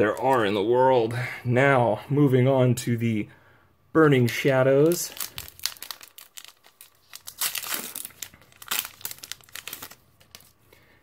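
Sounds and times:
foil wrapper tearing and crinkling: 0:04.9 - 0:10.5.

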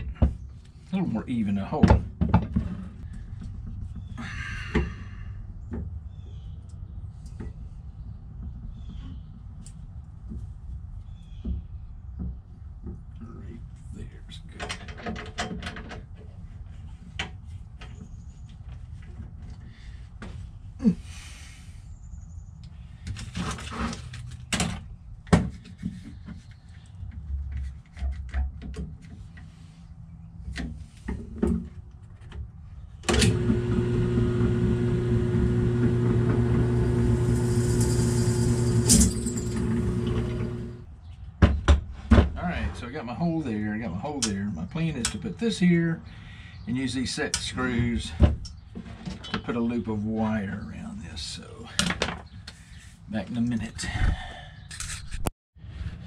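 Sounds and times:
drill press humming: 0:33.1 - 0:40.9.

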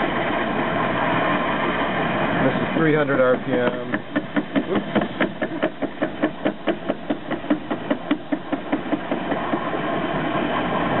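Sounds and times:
lathe running: 0:00.0 - 0:11.0
lathe tool knocking: 0:03.4 - 0:09.8.

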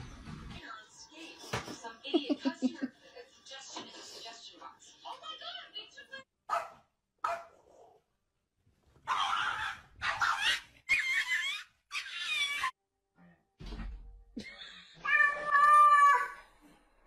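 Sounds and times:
cats meowing: 0:15.0 - 0:16.4.

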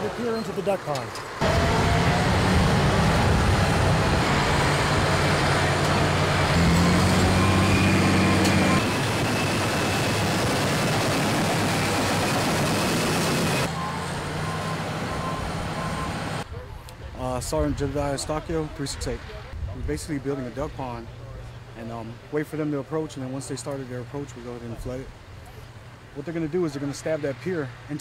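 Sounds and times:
bulldozer diesel engine running: 0:00.0 - 0:16.4.

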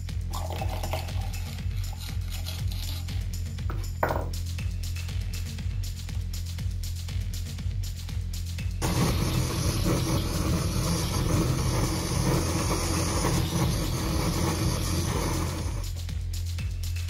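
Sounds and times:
blowtorch hissing: 0:08.8 - 0:16.0.

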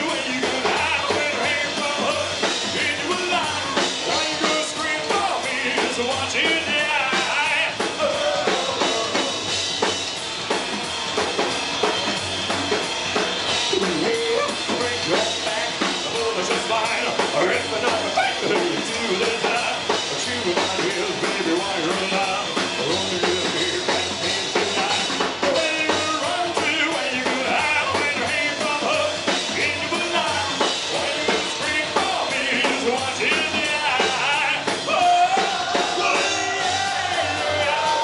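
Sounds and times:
loud rock and roll band: 0:00.0 - 0:38.0
person singing: 0:13.7 - 0:38.0.

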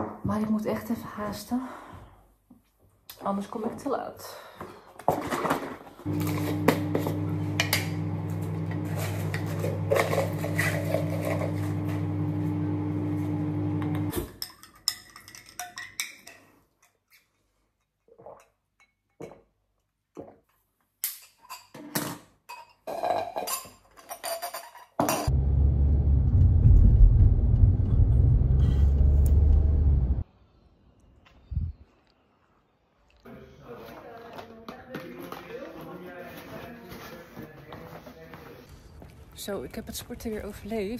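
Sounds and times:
microwave oven humming: 0:06.1 - 0:14.1, 0:25.3 - 0:30.2
kitchenware clinks and knocks: 0:14.1 - 0:17.0, 0:21.2 - 0:25.3.

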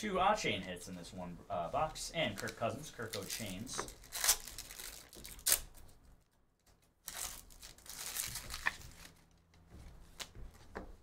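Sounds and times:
foil wrapper tearing and crinkling: 0:02.4 - 0:05.9, 0:07.0 - 0:09.2.

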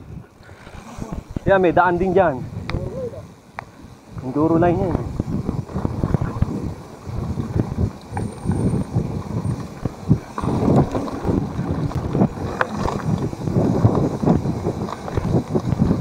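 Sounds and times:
wind rumbling on microphone: 0:00.0 - 0:16.0
bike knocks and rattles: 0:04.2 - 0:16.0.

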